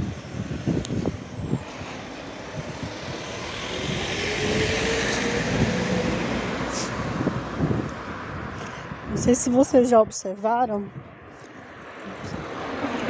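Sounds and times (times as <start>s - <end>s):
truck driving past: 0.0s - 8.6s.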